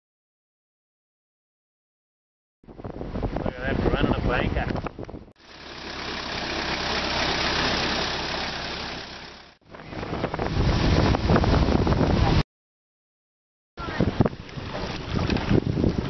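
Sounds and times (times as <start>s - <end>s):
vehicle engine running: 5.3s - 11.5s.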